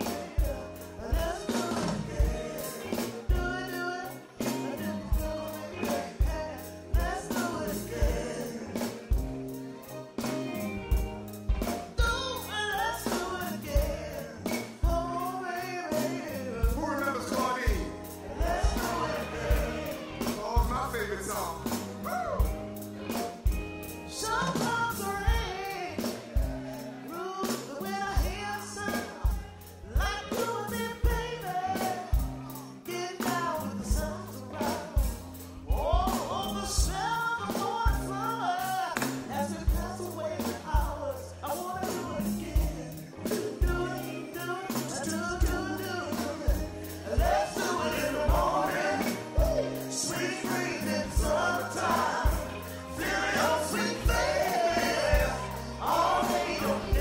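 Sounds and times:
person singing: 0.0 - 10.5, 24.1 - 57.0
steady drum beat: 0.0 - 32.6, 33.2 - 57.0
live soul band playing: 0.0 - 57.0.

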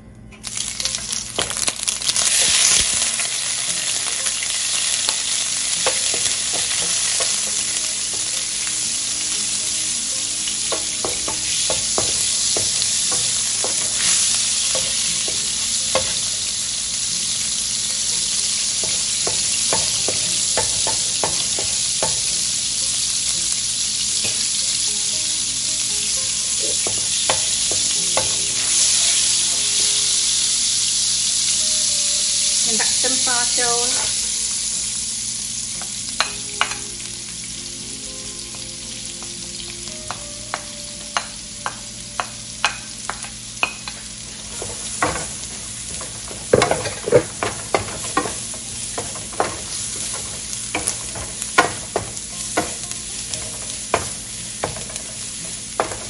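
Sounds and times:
butter sizzling in a frying pan: 0.4 - 56.0.

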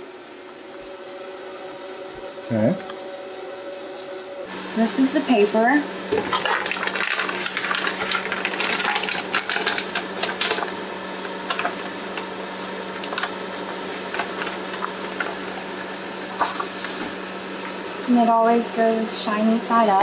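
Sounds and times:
plastic bag crinkling: 6.1 - 17.0.

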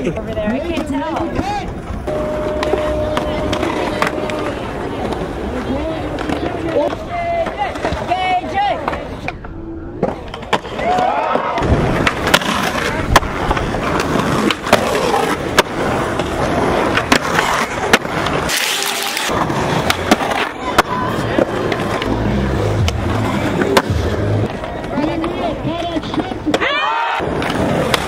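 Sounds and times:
skateboard wheels rolling on concrete: 0.0 - 28.0
skateboard cracks and landings: 10.0 - 22.1, 26.1 - 28.0.

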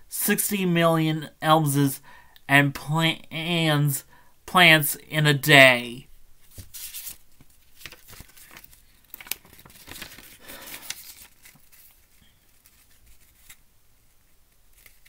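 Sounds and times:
paper pages rustling: 6.4 - 13.6, 14.6 - 15.0.

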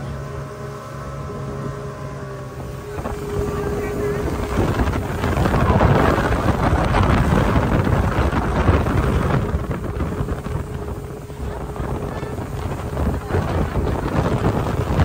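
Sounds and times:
outboard motor humming: 0.0 - 15.0
rushing water: 0.0 - 15.0
wind buffeting microphone: 0.0 - 15.0.

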